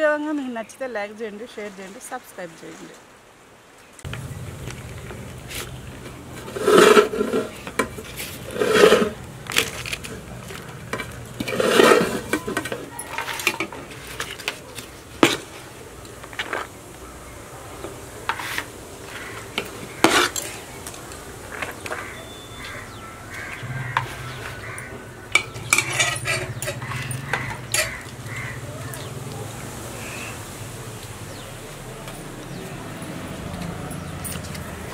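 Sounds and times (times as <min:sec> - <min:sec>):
ladle scraping rice in steel pot: 0:06.4 - 0:10.0, 0:10.9 - 0:15.5, 0:18.3 - 0:20.6, 0:23.8 - 0:28.0.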